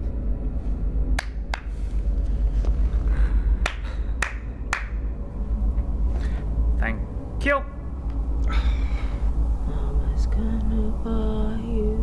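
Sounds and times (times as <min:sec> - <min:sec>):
low rumble: 0:00.0 - 0:12.0
sharp snaps: 0:01.2 - 0:01.7, 0:03.6 - 0:05.0.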